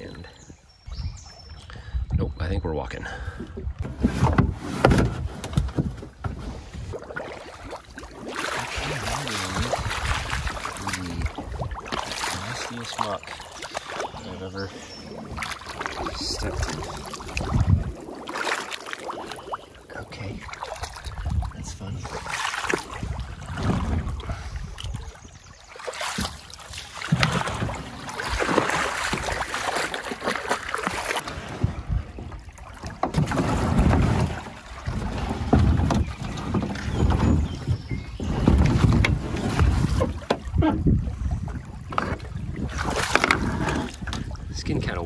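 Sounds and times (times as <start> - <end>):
wading splashes in water: 3.2 - 45.0
low bumps against kayak hull: 3.8 - 7.2, 22.2 - 25.1, 26.1 - 44.4.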